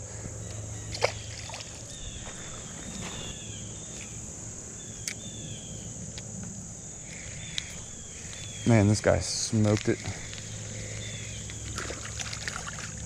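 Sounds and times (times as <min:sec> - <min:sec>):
high-pitched insect chorus: 0:00.0 - 0:13.0
small splash in water: 0:00.9 - 0:01.8, 0:11.6 - 0:13.0.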